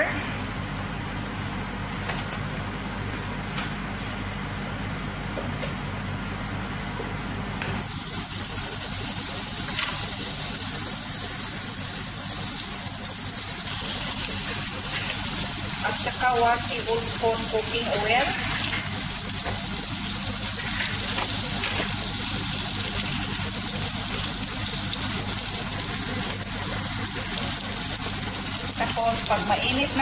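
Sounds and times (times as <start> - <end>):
butter sizzling in pot: 7.8 - 30.0.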